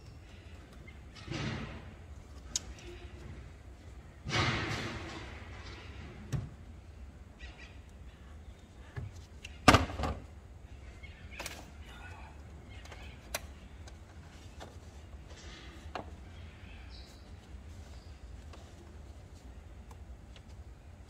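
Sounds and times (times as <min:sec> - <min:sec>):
loud clunk: 0:04.2 - 0:06.0.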